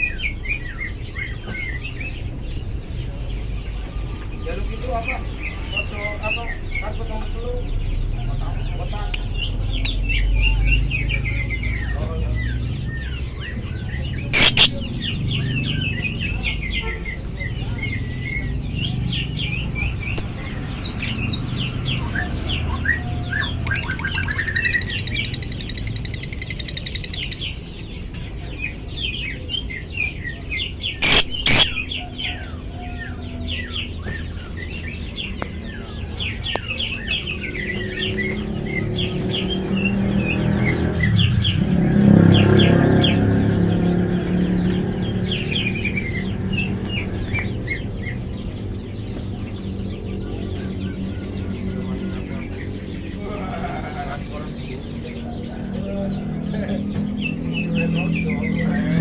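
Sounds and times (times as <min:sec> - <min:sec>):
lovebird chirping: 0:14.3 - 0:14.9, 0:23.4 - 0:27.4, 0:31.0 - 0:31.9.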